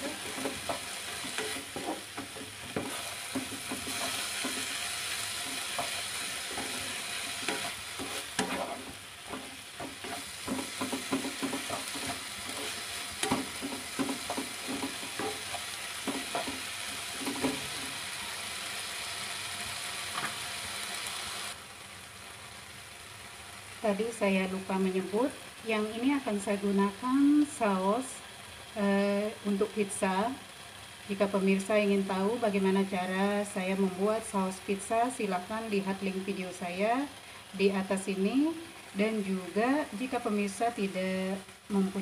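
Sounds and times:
spatula scraping a pan: 0.0 - 18.0
meat sizzling in a frying pan: 0.0 - 42.0
spatula knocking against pan: 9.3 - 12.2, 13.2 - 15.4.

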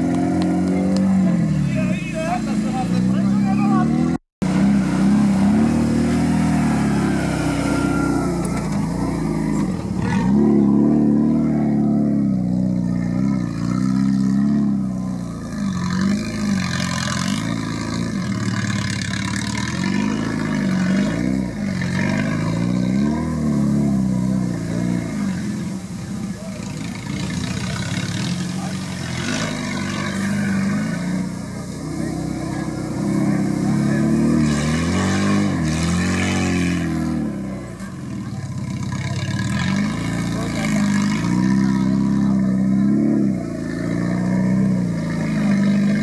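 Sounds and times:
truck engine revving: 0.0 - 46.0.

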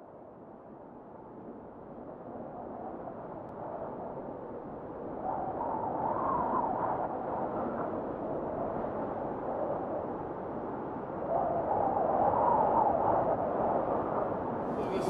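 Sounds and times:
murmur of distant voices echoing: 14.8 - 15.0.

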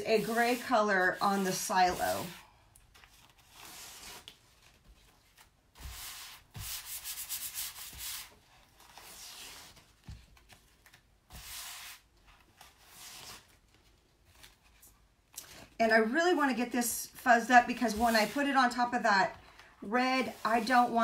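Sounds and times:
hands rubbing scratchy transfer: 0.0 - 2.4, 17.6 - 19.0, 20.0 - 21.0.

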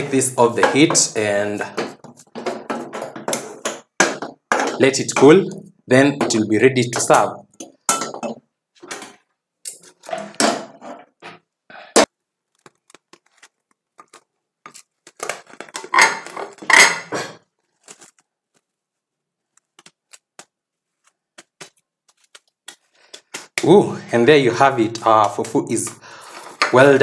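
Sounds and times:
cling film crinkling: 12.4 - 15.9, 17.6 - 23.6.

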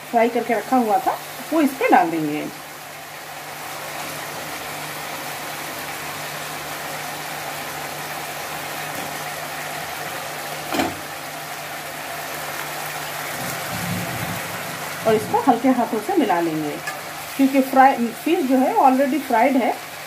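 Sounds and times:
gravy simmering with steady hiss: 0.0 - 20.0
low constant hum: 13.4 - 18.8.

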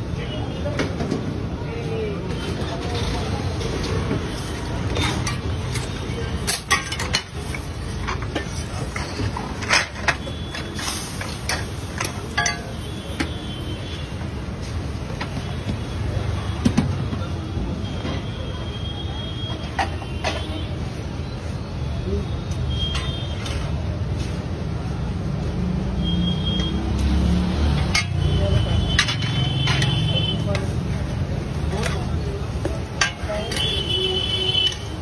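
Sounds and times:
food stall background rumble: 0.0 - 35.0
utensils clinking on griddle: 4.4 - 12.9, 27.6 - 35.0.

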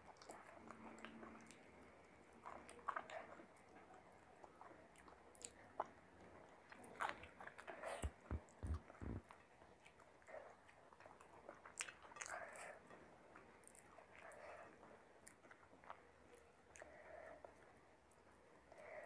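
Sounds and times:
dull low thumps: 8.0 - 9.2.

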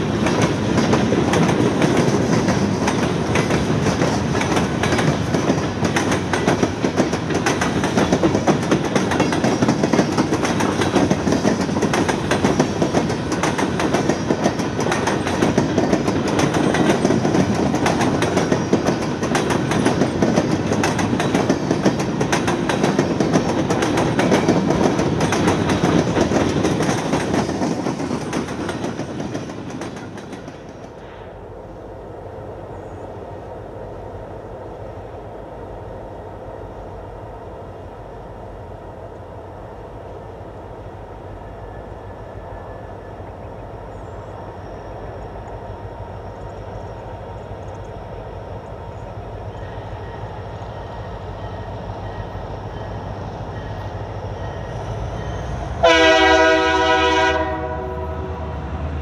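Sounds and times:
train wheels clattering over rail joints: 0.0 - 31.0.

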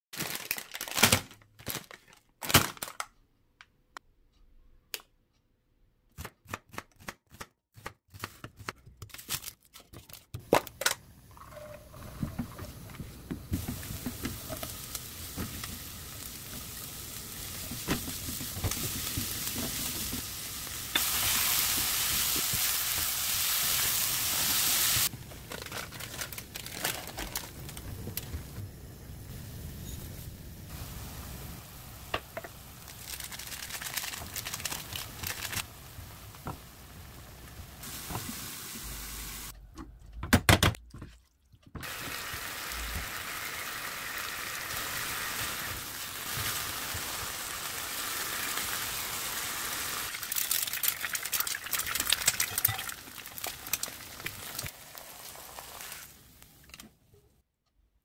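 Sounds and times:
onion sizzling in oil: 11.9 - 25.1, 27.4 - 39.5, 41.8 - 56.6.

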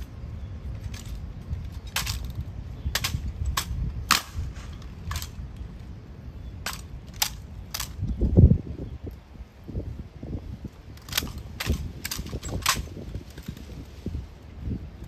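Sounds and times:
low outdoor rumble: 0.0 - 15.0
sharp rifle clacks: 1.9 - 5.4, 6.6 - 8.0.

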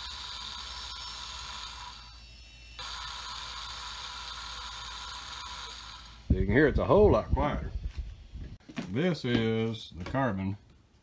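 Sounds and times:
small electric motor whirring: 0.0 - 8.4.

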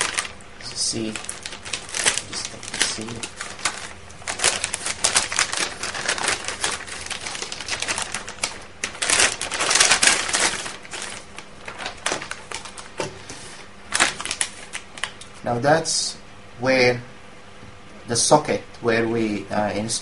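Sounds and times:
anti-static bag crinkling: 0.0 - 15.4.

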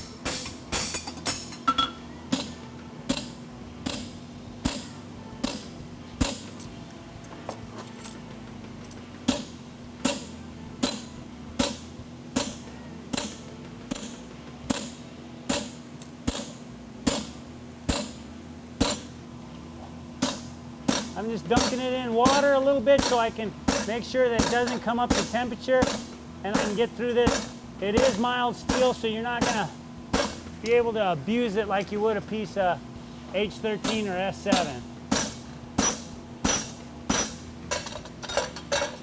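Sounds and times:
hammer striking metal on anvil: 0.0 - 6.6, 9.3 - 11.8, 12.4 - 18.2, 18.8 - 19.1, 20.2 - 30.5, 33.8 - 39.0.

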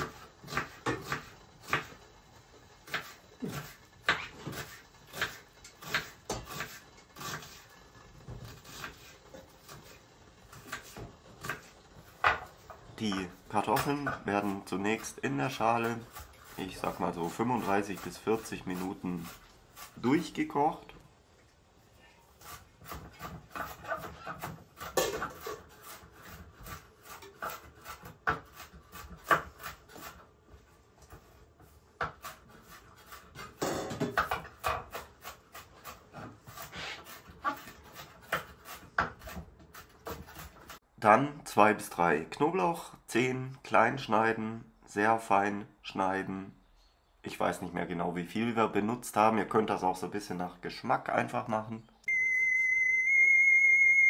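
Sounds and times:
knife chopping on wooden board: 0.0 - 2.0, 2.8 - 7.6, 22.4 - 30.2, 32.0 - 40.8.

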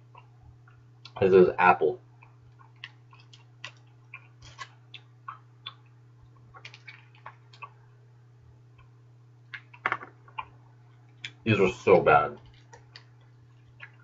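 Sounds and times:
low steady hum: 0.0 - 14.0
bubble gum chewing: 2.2 - 7.8, 9.5 - 11.4, 12.4 - 14.0.

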